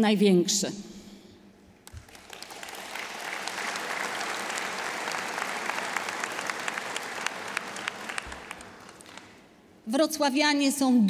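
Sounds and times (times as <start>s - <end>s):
large audience clapping: 1.8s - 9.5s.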